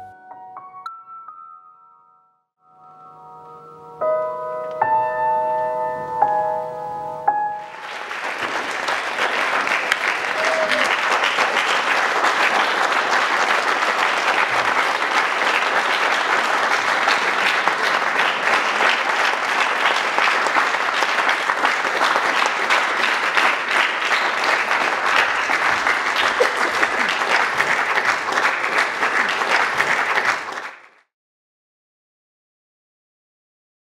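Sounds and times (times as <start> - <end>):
audience applauding: 7.6 - 31.1.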